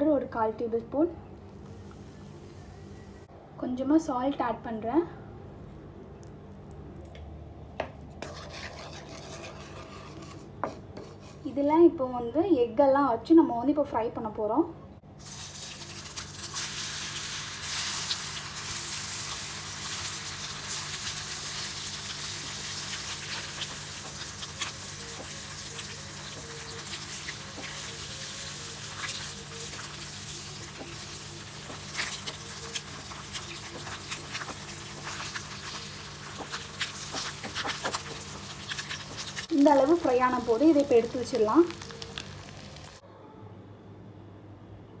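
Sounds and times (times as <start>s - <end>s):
eggs sizzling in hot oil: 8.2s - 10.8s, 15.2s - 43.0s
oil crackling and popping: 15.2s - 43.0s.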